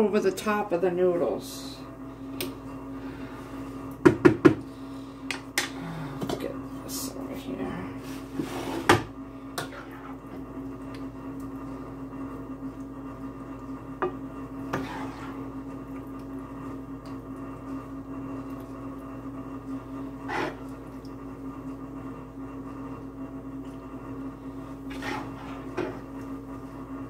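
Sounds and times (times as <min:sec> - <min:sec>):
steady hum: 0:00.0 - 0:27.0.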